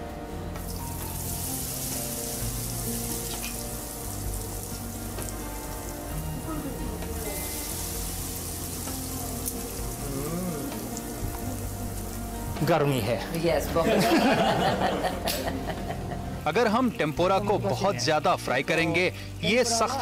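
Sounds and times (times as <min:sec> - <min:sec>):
fritters sizzling in hot oil: 0:00.6 - 0:12.6.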